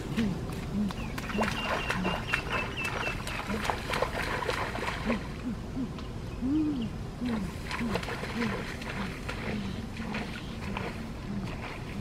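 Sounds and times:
short low calls: 5.0s - 11.7s.

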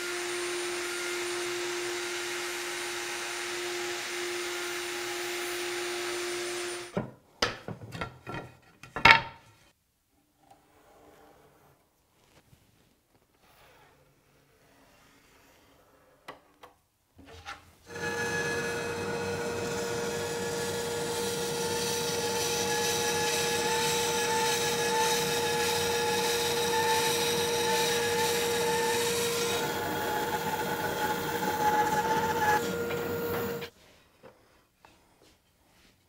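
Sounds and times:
bandsaw cutting wood: 17.9s - 33.7s.

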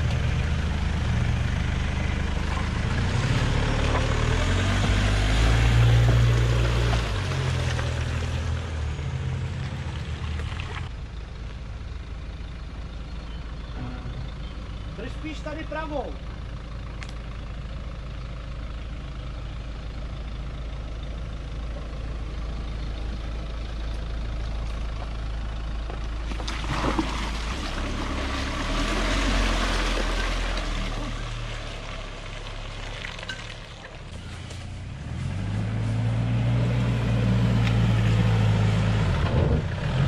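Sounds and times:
engine revving: 0.0s - 9.5s, 34.2s - 40.0s
mud splashing and tyre noise: 0.0s - 40.0s
off-road vehicle engine: 0.0s - 40.0s.

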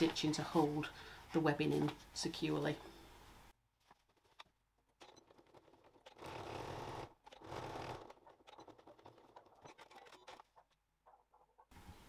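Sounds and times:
sewing machine stitching: 4.0s - 10.8s.

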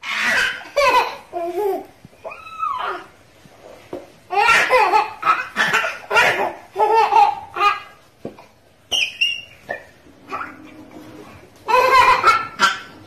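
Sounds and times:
baby laughing: 0.0s - 3.1s, 4.3s - 8.6s, 11.4s - 13.0s.

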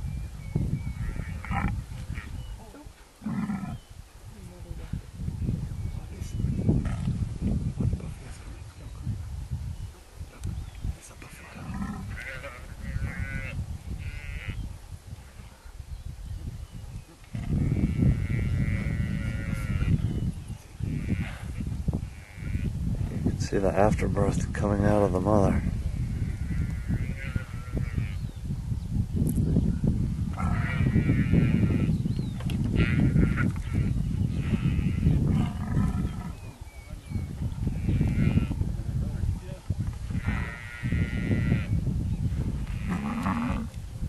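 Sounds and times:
buffalo calf bellowing: 30.3s - 31.9s.

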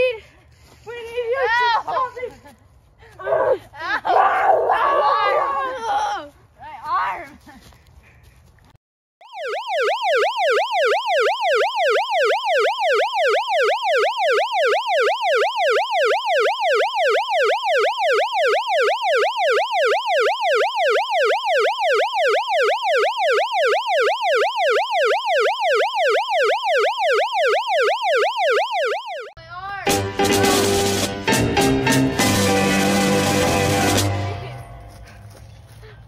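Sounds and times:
ambulance siren yelping: 9.2s - 29.4s.

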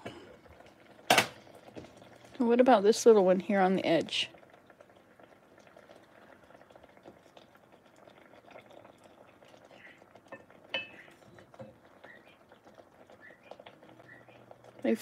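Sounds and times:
fish simmering in butter: 0.0s - 15.0s.

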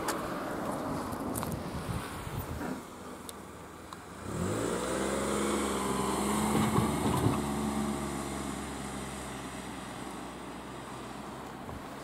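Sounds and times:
vehicle engine accelerating: 4.2s - 11.4s.

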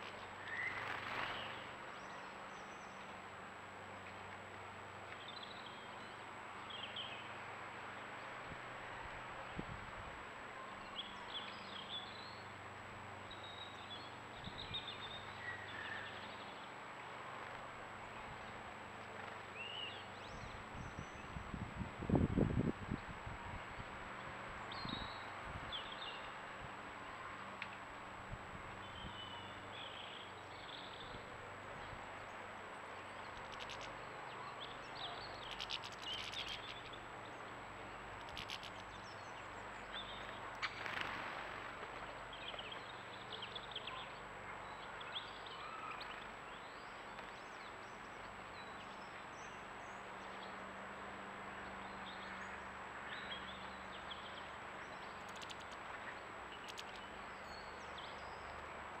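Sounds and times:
outdoor background hiss: 0.0s - 59.0s
birds twittering: 0.2s - 3.2s, 13.2s - 16.8s, 28.8s - 50.6s, 51.6s - 59.0s
sharp ticks: 35.5s - 36.8s, 38.2s - 38.9s, 55.2s - 55.8s, 56.6s - 57.1s.

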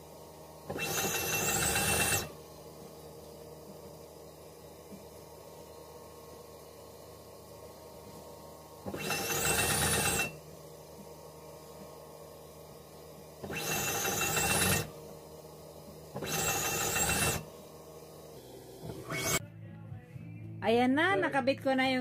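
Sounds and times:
sewing machine stitching: 0.7s - 2.3s, 8.9s - 10.3s, 13.4s - 14.9s, 16.2s - 17.4s
rising machine whine: 18.4s - 19.4s.

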